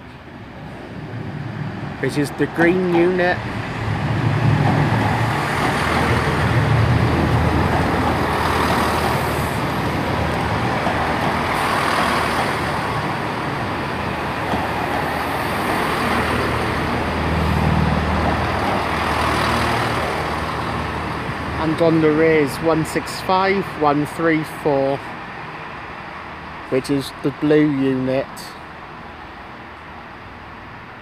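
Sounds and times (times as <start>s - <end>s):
train wheels on rails: 0.0s - 22.0s.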